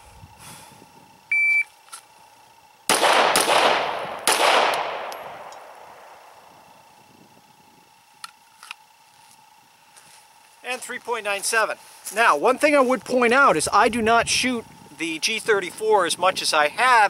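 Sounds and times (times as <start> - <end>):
shot timer beep: 1.3 - 1.7
pistol shots with echo: 2.9 - 6.2.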